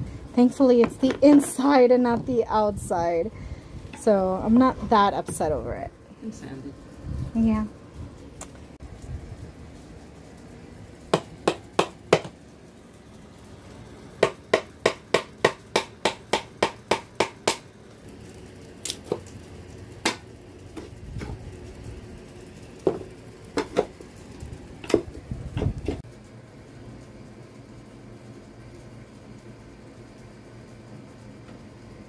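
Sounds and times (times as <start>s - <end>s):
hammer striking chisel on wood: 11.1s - 12.3s, 14.2s - 17.6s.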